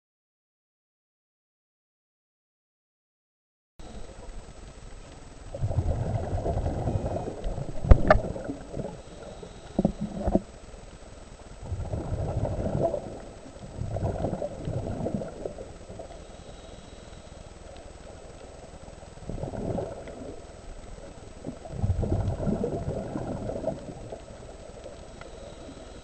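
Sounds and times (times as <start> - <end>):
underwater bubbles burbling: 3.8 - 10.6, 11.4 - 16.7, 17.6 - 26.0.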